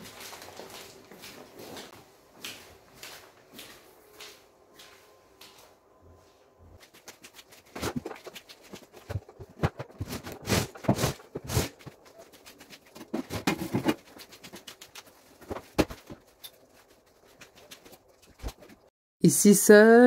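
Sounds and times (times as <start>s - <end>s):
objects knocking and scraping: 7.6s - 14.8s, 15.4s - 16.7s.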